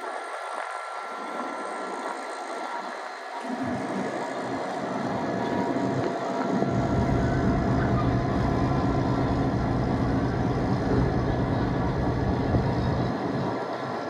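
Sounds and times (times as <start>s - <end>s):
diesel locomotive engine drone: 0.0s - 14.0s
deep engine rumble: 3.5s - 13.8s.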